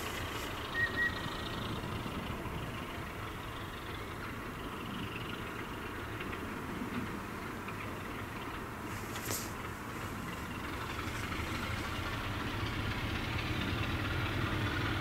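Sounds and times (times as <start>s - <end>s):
locomotive low rumble: 0.0s - 15.0s
noisy hiss: 8.7s - 12.9s.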